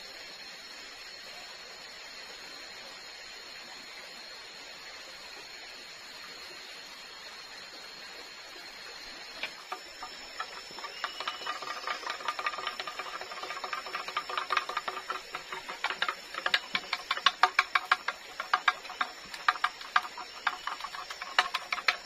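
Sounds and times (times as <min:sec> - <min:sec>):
steady high hiss: 0:00.0 - 0:22.0
blade knocking on bamboo: 0:09.4 - 0:22.0.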